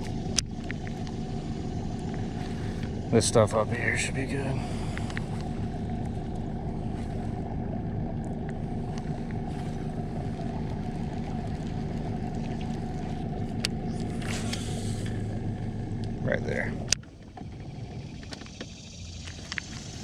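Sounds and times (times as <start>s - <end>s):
boat motor humming: 0.0s - 20.0s
faint ticks: 4.8s - 7.2s, 18.2s - 20.0s.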